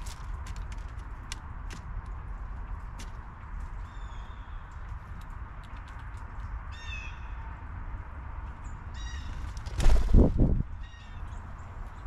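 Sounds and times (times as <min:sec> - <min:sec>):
blue jay harsh calls: 0:06.7 - 0:07.4, 0:08.9 - 0:09.5, 0:10.8 - 0:11.4.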